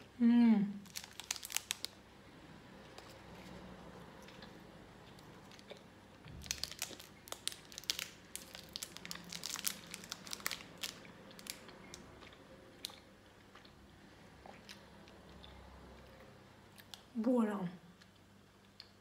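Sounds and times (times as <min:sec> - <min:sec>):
foil wrapper crinkling: 0:00.8 - 0:02.0, 0:06.4 - 0:12.0
chewing: 0:02.9 - 0:05.9, 0:10.6 - 0:13.8.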